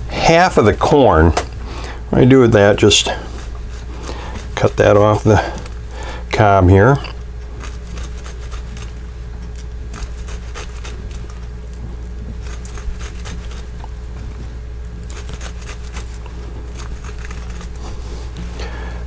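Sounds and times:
steady low hum: 0.0s - 19.0s
knife slicing corn kernels: 7.6s - 11.4s, 12.4s - 13.9s, 14.9s - 18.4s.

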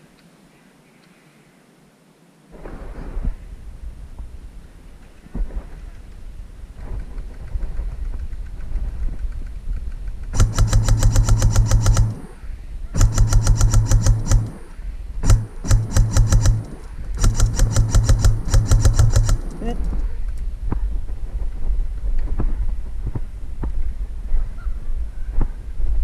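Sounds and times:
airsoft rifle firing bursts: 10.3s - 20.0s
gearbox motor humming: 10.4s - 12.3s, 13.0s - 14.6s, 15.2s - 19.7s.

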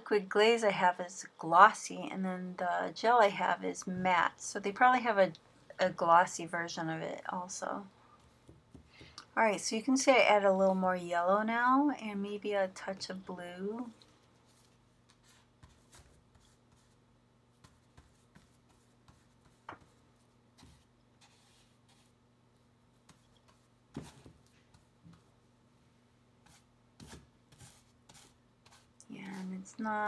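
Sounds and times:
brush tapping and rubbing on palette: 17.6s - 22.1s.

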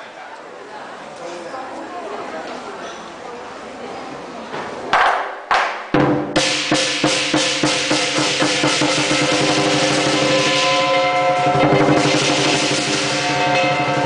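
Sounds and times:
drum strikes and drum roll: 4.9s - 14.0s
cymbals ringing: 6.3s - 14.0s.

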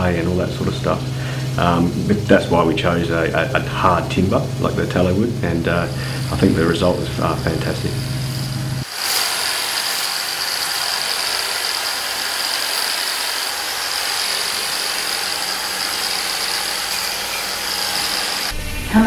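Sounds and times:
power tool whining against timber: 4.9s - 18.6s.

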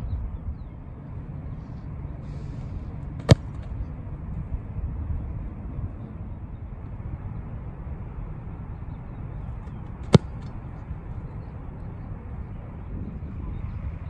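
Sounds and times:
foot kicking football: 3.2s - 3.8s, 9.6s - 10.8s.

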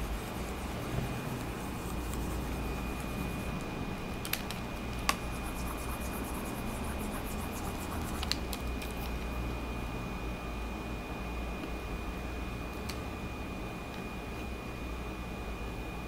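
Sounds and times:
stylus scratching and tapping: 0.0s - 3.5s, 4.9s - 9.2s
cooling fan hiss and whine: 0.0s - 16.0s.

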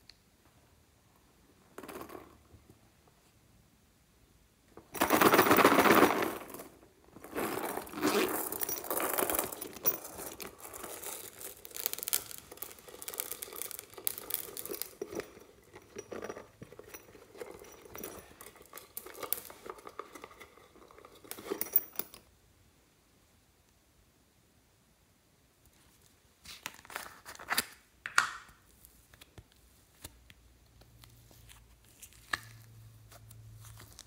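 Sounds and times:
plastic toy crinkling and crackling: 7.2s - 15.6s, 17.4s - 21.3s, 30.8s - 34.0s.

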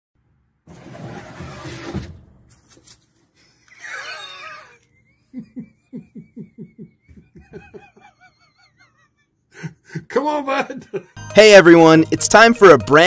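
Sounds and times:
person laughing: 3.7s - 11.2s.

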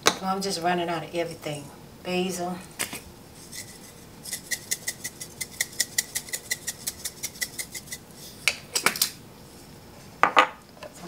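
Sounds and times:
glass spice jar shaking: 3.4s - 8.0s.

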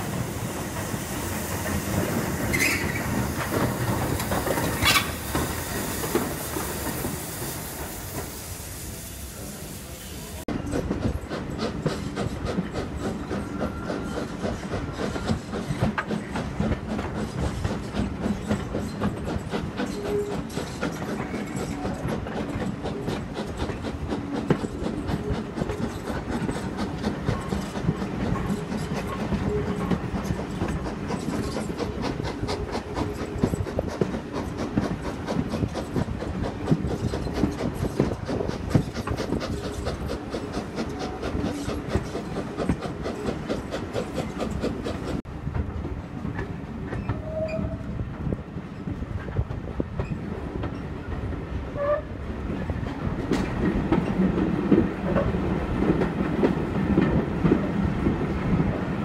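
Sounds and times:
steam locomotive exhaust: 0.0s - 45.2s
train wheels clicking on rail joints: 0.0s - 59.0s.

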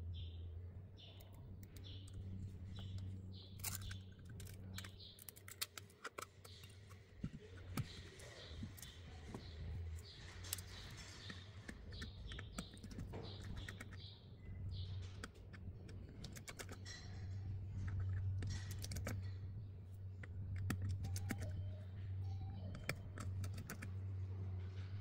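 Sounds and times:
steady low hum: 0.0s - 25.0s
screwdriver clicking on metal: 17.8s - 19.3s.

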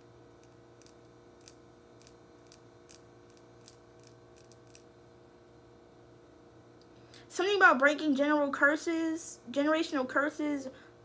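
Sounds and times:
faint steady hum: 0.0s - 11.0s
small sharp clicks: 0.4s - 4.9s.

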